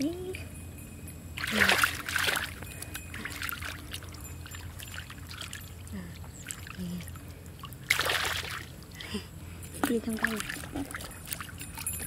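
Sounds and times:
muddy water sloshing: 1.4s - 12.0s.

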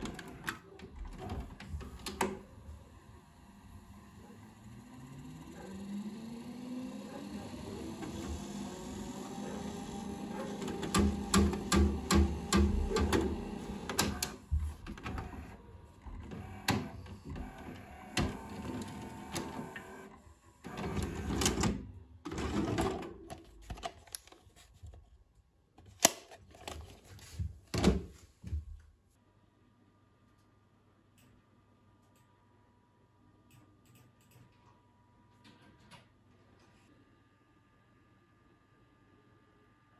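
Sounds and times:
tape mechanism clicks and clunks: 0.0s - 2.9s, 7.3s - 24.4s.

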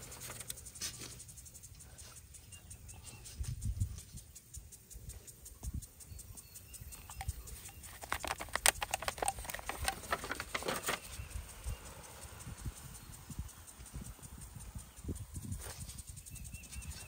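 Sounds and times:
plastic pot crackling: 7.0s - 11.2s
hands pressing soil thumps: 7.2s - 11.2s.

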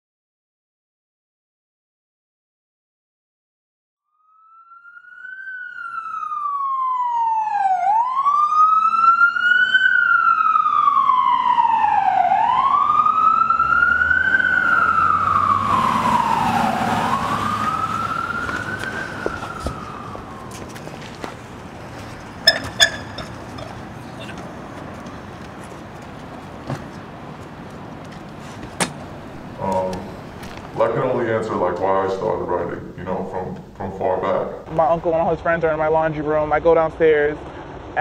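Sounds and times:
emergency vehicle siren wailing: 4.1s - 25.4s.

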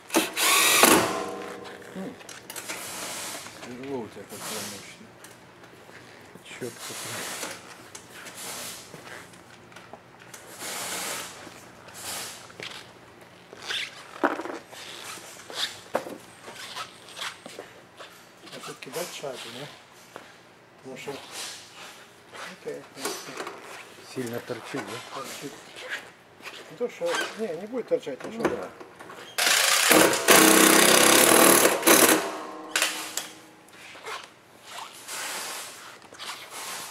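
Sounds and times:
cordless power driver running: 0.1s - 1.5s, 29.4s - 32.9s.

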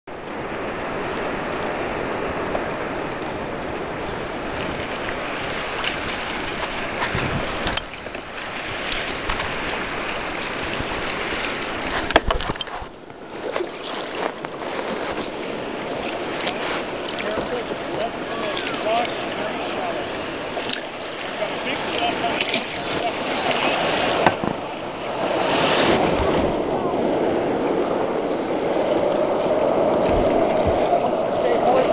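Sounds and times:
water sloshing around kayak: 0.1s - 31.9s
knocks and splashes: 4.5s - 26.8s, 29.6s - 31.9s.

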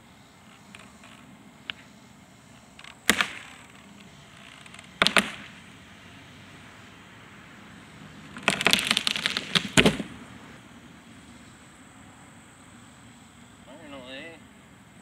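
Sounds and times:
log thudding on ground: 2.8s - 5.6s, 8.4s - 10.3s
wood cracking and splintering: 4.4s - 5.5s, 8.4s - 10.2s.

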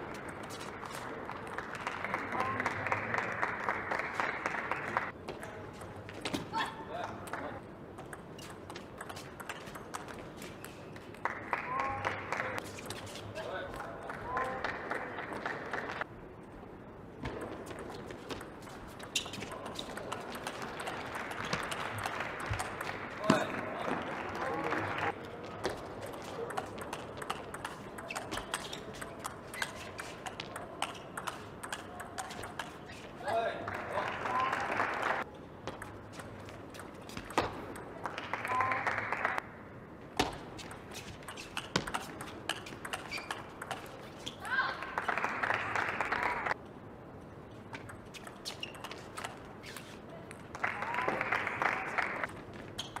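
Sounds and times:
crowd clapping and cheering: 0.0s - 5.2s, 11.2s - 12.6s, 13.9s - 16.1s, 20.0s - 25.2s, 33.3s - 35.3s, 38.0s - 39.5s, 44.5s - 46.6s, 50.5s - 52.3s
table tennis ball clicking: 26.5s - 32.9s, 40.7s - 44.0s.

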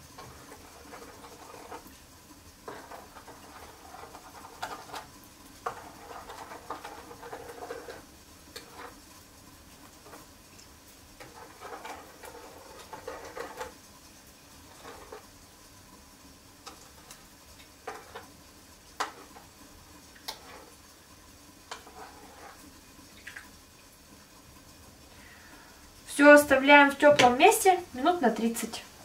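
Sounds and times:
spoon scraping a bowl: 0.2s - 1.9s, 5.7s - 8.0s, 8.6s - 9.0s, 11.2s - 13.7s, 21.7s - 22.7s.

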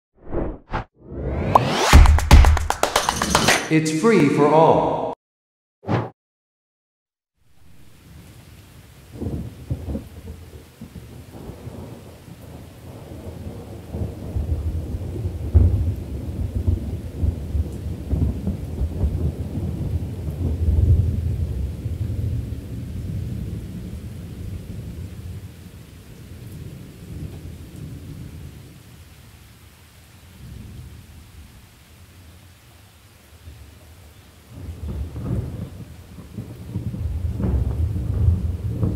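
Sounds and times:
rain falling: 7.5s - 38.9s
thunder rumbling: 34.6s - 38.9s.

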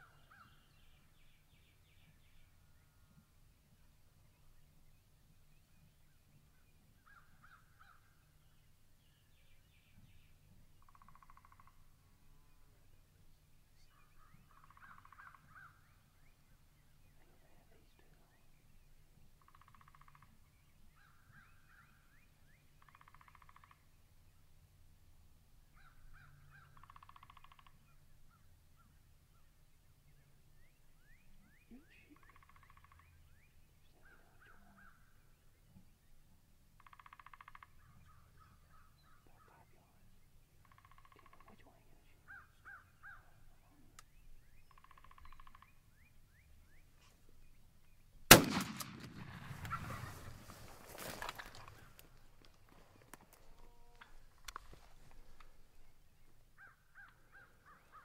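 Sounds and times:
faint bird calls: 0.0s - 3.3s, 5.6s - 24.4s, 25.7s - 29.6s, 30.2s - 36.1s, 36.8s - 58.0s
shotgun blast: 48.3s - 50.2s
turkeys gobbling: 49.5s - 52.0s.

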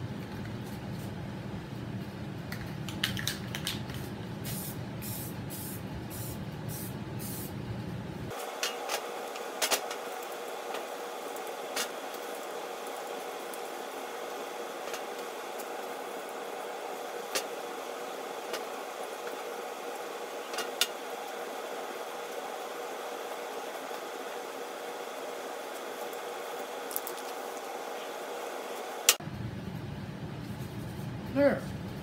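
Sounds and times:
spray can hissing bursts: 4.4s - 7.5s.

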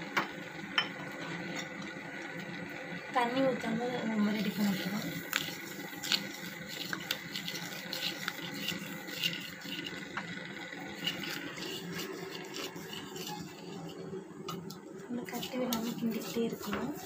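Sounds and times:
spatula scraping sugar in pan: 4.3s - 14.1s, 15.1s - 17.0s.

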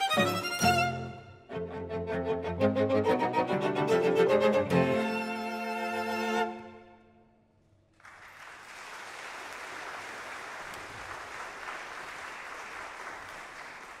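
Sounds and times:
audience applause: 8.0s - 14.0s.

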